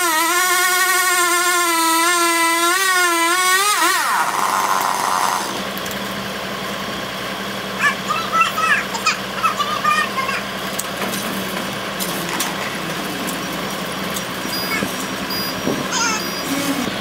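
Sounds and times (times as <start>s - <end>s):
chainsaw cutting wood: 0.0s - 5.8s.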